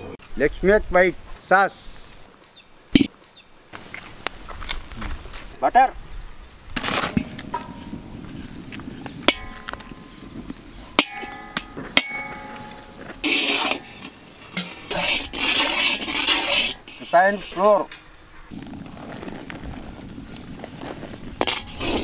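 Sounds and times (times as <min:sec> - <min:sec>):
metal spatula clanking on pan: 0:09.3 - 0:10.0, 0:11.0 - 0:17.0
spatula scraping pan: 0:12.0 - 0:17.8, 0:19.6 - 0:22.0.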